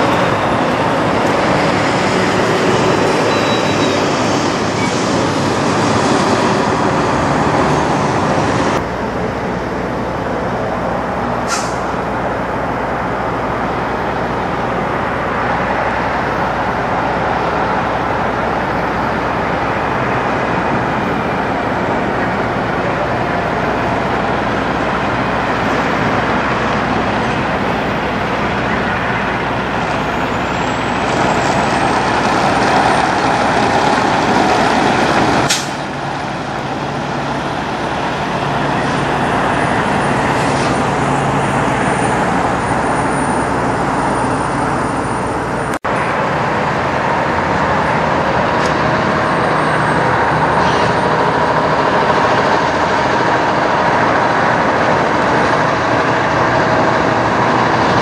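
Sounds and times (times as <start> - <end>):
truck diesel engine running: 0.0 - 58.0
sharp snap: 35.5 - 35.8.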